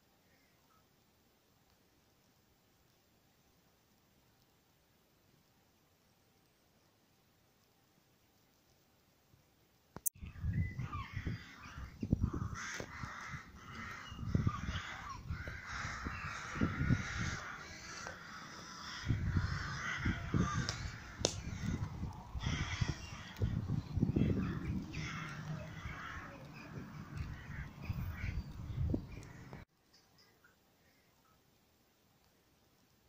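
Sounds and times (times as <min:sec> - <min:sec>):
crows cawing: 0:10.8 - 0:29.6.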